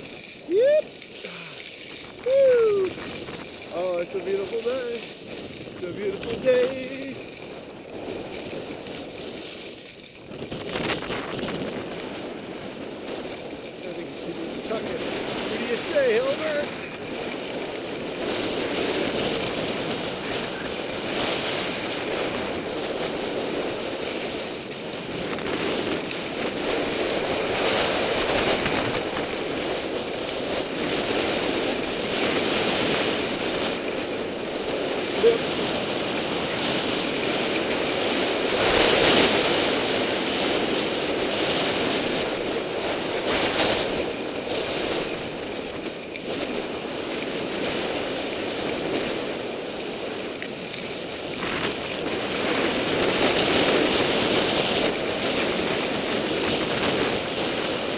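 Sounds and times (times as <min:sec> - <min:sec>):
skis scraping over snow: 0:00.0 - 0:57.9
wind buffeting microphone: 0:00.0 - 0:57.9.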